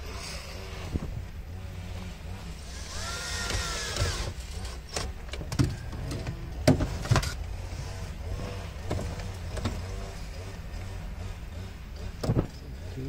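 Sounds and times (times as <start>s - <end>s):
cordless drill whirring: 2.6s - 5.1s.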